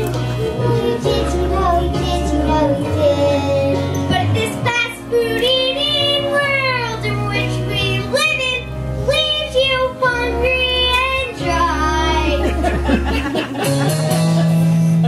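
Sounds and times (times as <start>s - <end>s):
girls singing: 0.0s - 6.8s
backing music: 0.0s - 15.0s.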